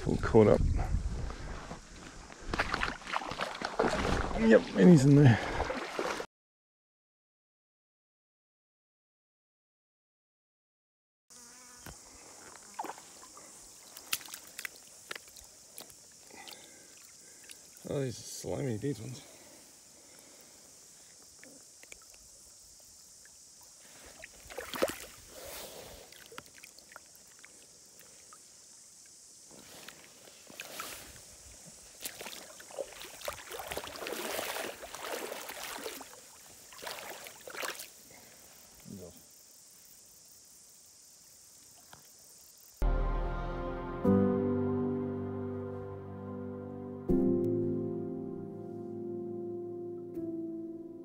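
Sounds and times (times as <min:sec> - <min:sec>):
water sloshing and splashing: 0:02.3 - 0:06.3, 0:12.5 - 0:17.9, 0:24.0 - 0:28.2, 0:30.4 - 0:38.1.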